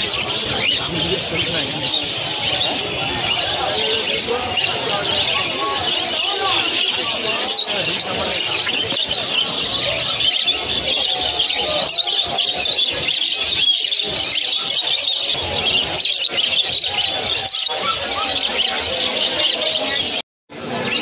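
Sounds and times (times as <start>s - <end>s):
finches chirping and twittering: 0.0s - 20.2s.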